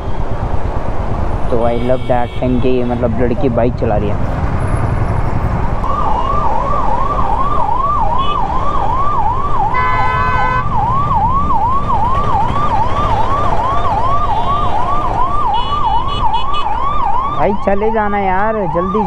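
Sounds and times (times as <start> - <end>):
wind and road noise: 0.0 - 19.0
vehicle horn honk: 1.6 - 3.4, 9.8 - 10.6
siren yelping: 5.6 - 19.0.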